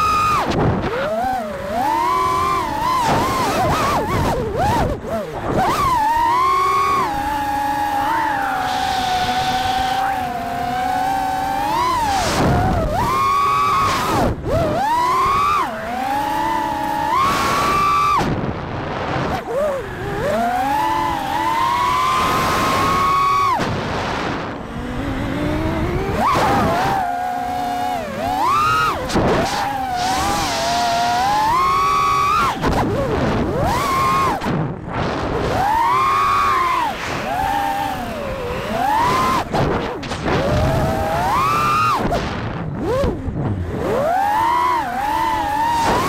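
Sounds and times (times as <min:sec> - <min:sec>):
drone motors whining: 0:00.0 - 0:46.0
rushing air: 0:29.0 - 0:31.6.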